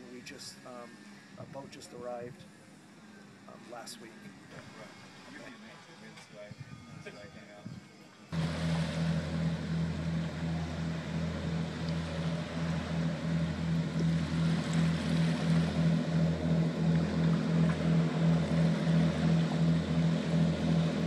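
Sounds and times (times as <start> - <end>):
boat diesel engines humming: 8.2 - 21.0.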